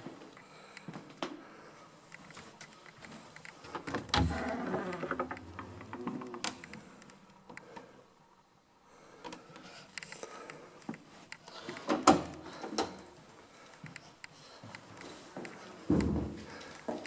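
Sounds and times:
door creak: 3.7 - 6.8.

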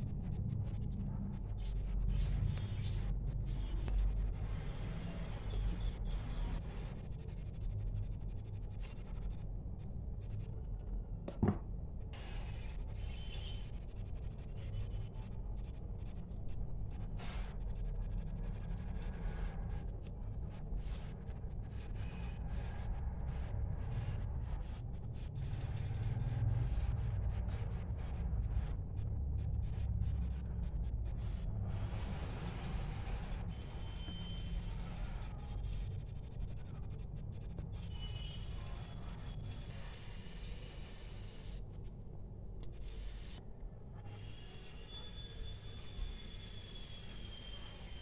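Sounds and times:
light scratches: 0.0 - 11.4, 12.2 - 43.4
paper rustling and rubbing: 16.9 - 36.6.

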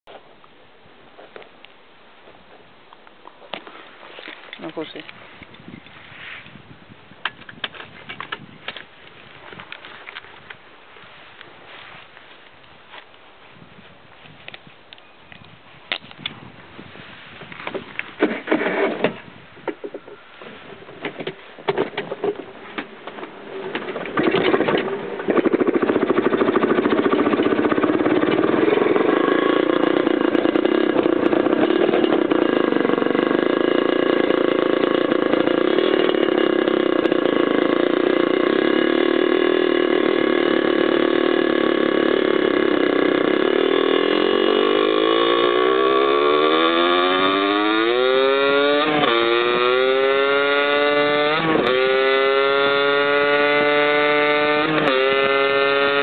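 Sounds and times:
two-stroke engine starting and revving: 17.6 - 56.0.

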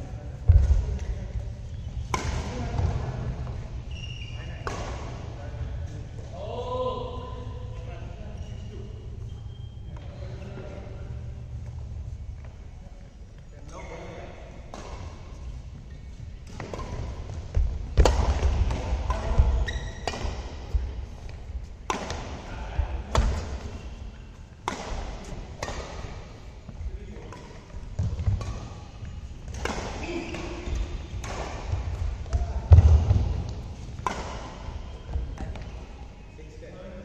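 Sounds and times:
rackets smacking shuttlecock: 21.3 - 22.4, 24.6 - 26.1, 29.4 - 34.7.

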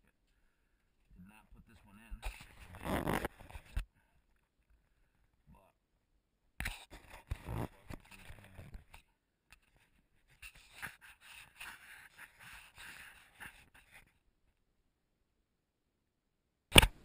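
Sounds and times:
rustling and scraping: 6.6 - 14.2.

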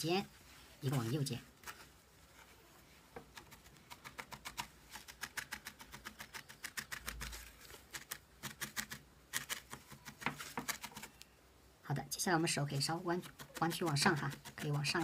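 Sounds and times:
felting needle stabbing wool: 3.2 - 11.2, 12.4 - 15.0.

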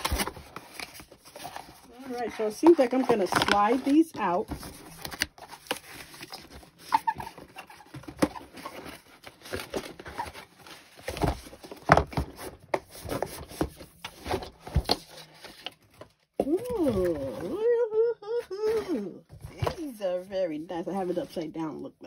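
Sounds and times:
packaging rustling and scraping: 0.0 - 17.7.

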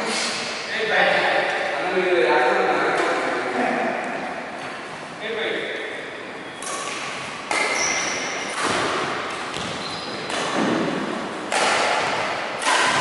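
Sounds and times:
shoes squeaking on court: 6.2 - 10.8
rackets hitting shuttlecock: 6.6 - 13.0.

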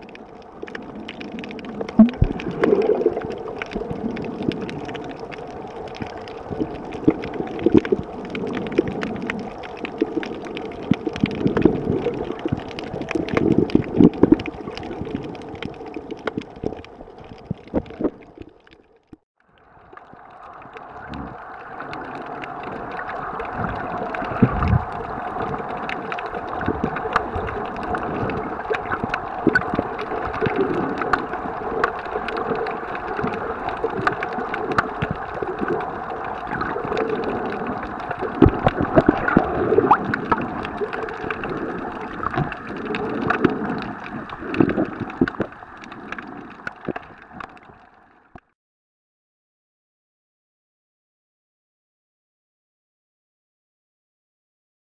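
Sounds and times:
small underwater clicks and crackles: 0.0 - 48.6
muffled underwater hum: 19.5 - 48.5.

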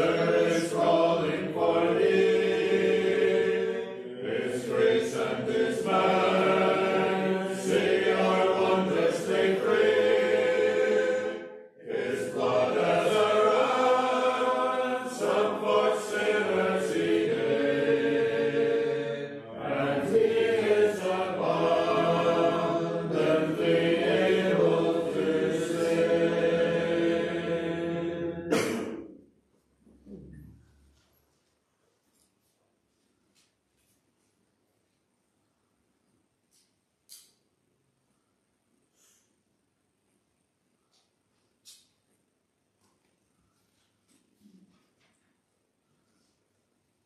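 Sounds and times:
congregation singing a hymn: 0.0 - 29.1.

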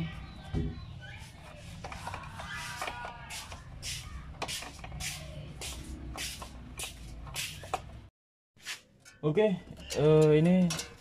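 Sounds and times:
hands handling wiring: 8.7 - 11.0.

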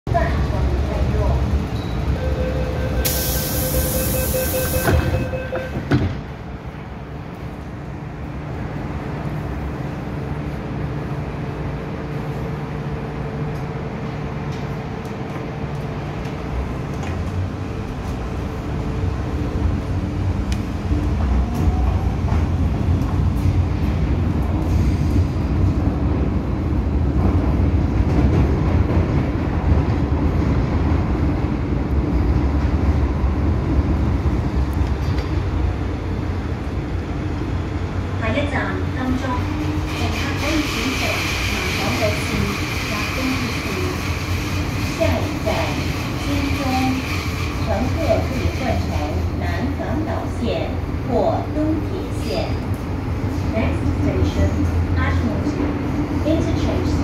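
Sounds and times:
train wheels on rails: 14.4 - 57.0.

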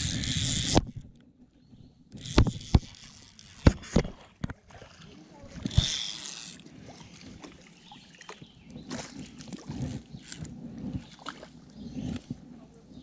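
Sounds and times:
water sloshing: 2.1 - 12.9.

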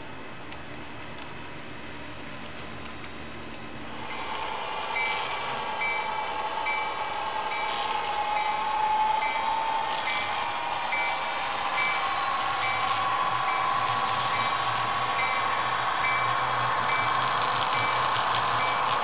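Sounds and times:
whining locomotive running tone: 0.0 - 19.0
locomotive bell ringing: 4.0 - 19.0.

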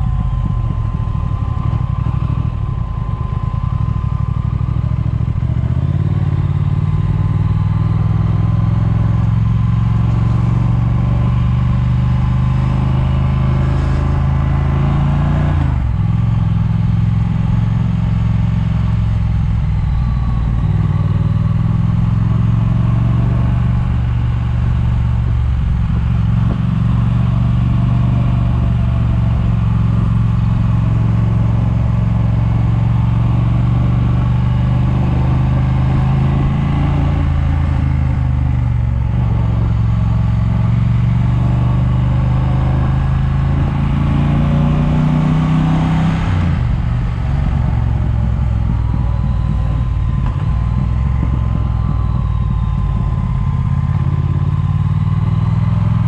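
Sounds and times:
wind noise on microphone: 0.0 - 4.0, 25.1 - 27.3, 45.7 - 55.6
motorcycle engine running: 0.0 - 56.0.

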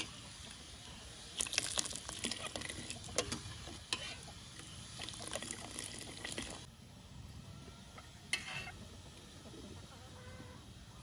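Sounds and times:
liquid sloshing and pouring: 1.4 - 3.4, 5.0 - 6.6.

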